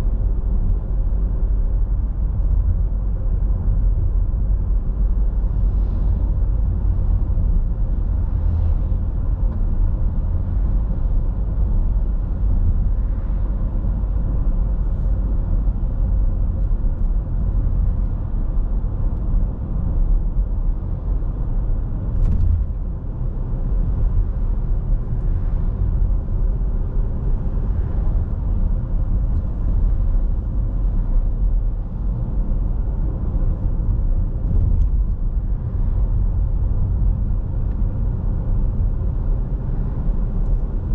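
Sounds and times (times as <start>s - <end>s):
car interior road rumble: 0.0s - 40.9s.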